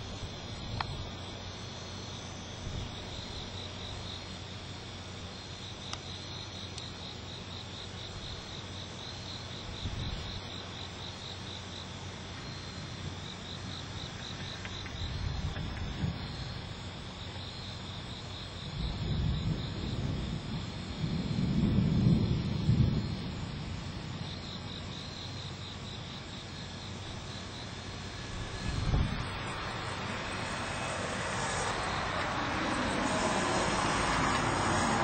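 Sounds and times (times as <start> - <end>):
insects trilling: 0.0 - 35.0
distant thunder rumble: 18.7 - 24.4, 27.0 - 35.0.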